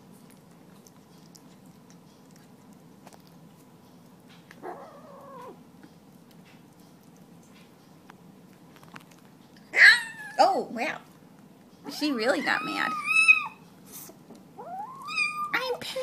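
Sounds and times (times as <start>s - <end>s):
kitten yowling angrily: 4.6s - 5.6s, 9.8s - 10.4s, 12.4s - 13.6s, 14.6s - 15.6s.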